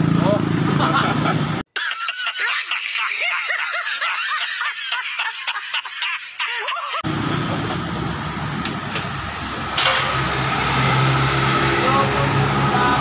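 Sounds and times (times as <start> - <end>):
high-pitched laughter: 0.8 - 7.0.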